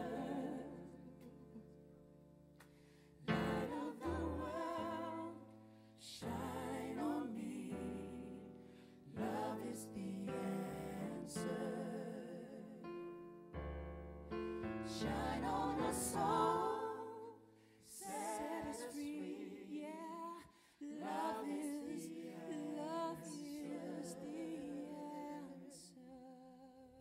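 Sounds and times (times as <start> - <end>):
choir singing soul ballad: 0.0 - 1.8, 3.2 - 13.0, 14.9 - 26.6.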